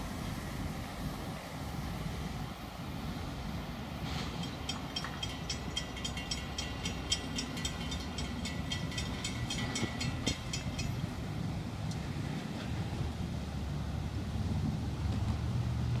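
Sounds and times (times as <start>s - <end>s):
road traffic rumble: 0.0s - 16.0s
wind: 0.0s - 16.0s
crossing bell ringing: 4.3s - 11.2s.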